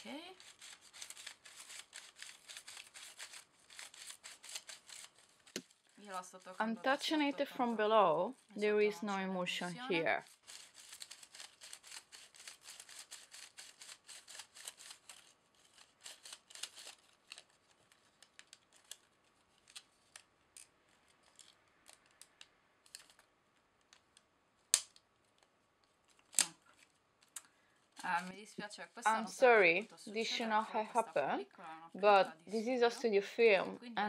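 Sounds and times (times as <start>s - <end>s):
sharp plastic snaps: 21.3s - 25.5s, 26.1s - 27.5s.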